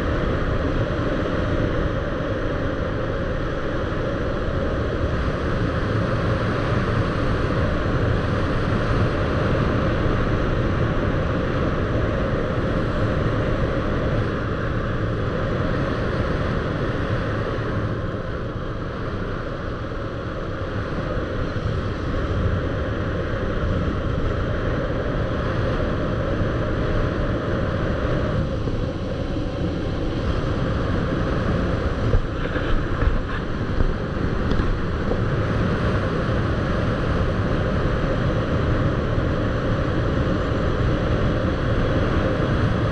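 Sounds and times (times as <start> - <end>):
moving vehicle noise: 0.0 - 42.9
wind buffeting microphone: 20.0 - 42.9.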